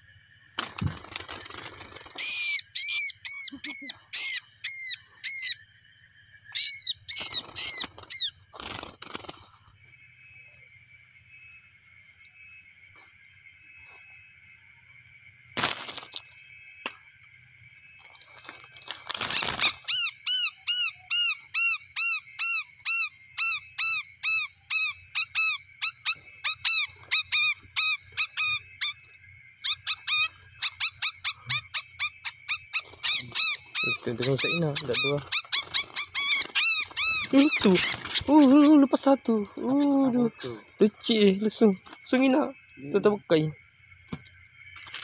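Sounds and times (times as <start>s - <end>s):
leaves rustling and thumping: 0.6s - 2.0s, 15.6s - 16.3s, 18.0s - 19.8s
songbird distress calls: 2.2s - 5.8s, 6.4s - 9.2s, 19.3s - 43.3s.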